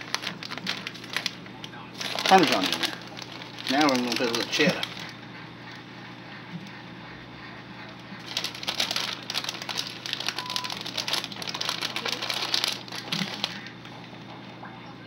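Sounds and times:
plastic packet crinkling: 0.0s - 5.2s, 8.2s - 14.2s.

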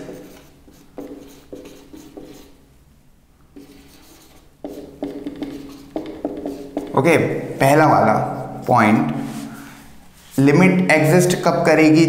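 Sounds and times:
marker pen writing on whiteboard: 0.0s - 2.6s, 3.5s - 9.3s.

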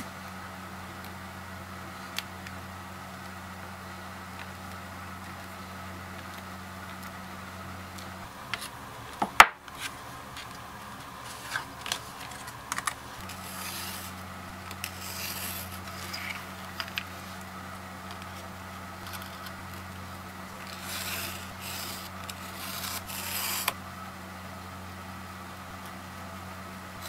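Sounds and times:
low steady hum: 0.0s - 27.0s.

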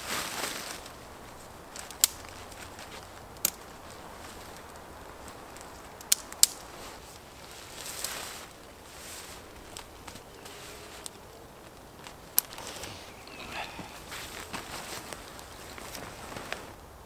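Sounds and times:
tent fabric rustling: 0.0s - 17.0s
plastic clips snapping onto pole: 1.8s - 2.3s.

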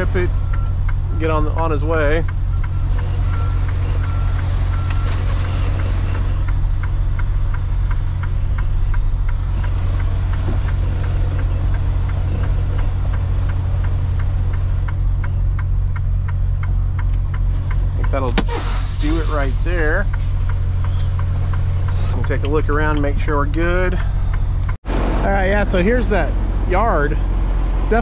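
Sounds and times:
diesel truck engine idling: 0.0s - 28.0s
light regular clicking: 6.4s - 18.2s.

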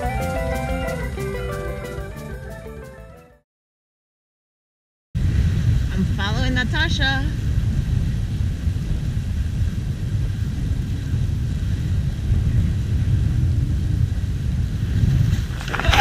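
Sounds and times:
wind buffeting microphone: 5.2s - 16.0s.

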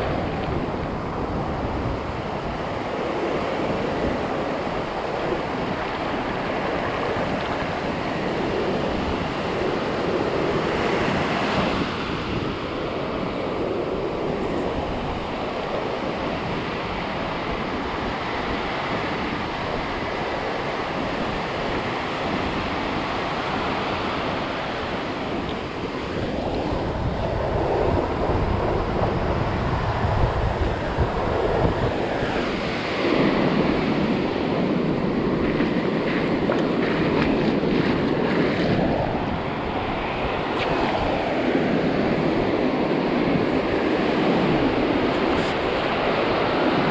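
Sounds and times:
surf washing over sand: 0.0s - 46.9s
wind buffeting microphone: 0.0s - 46.9s.

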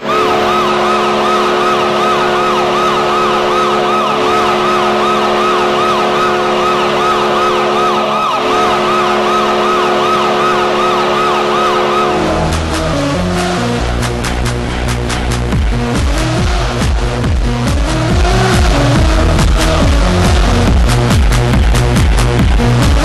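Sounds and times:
goal horn blaring: 0.0s - 13.8s
siren wailing: 0.0s - 13.8s, 17.6s - 21.2s
electronic music with a beat: 0.0s - 23.0s.

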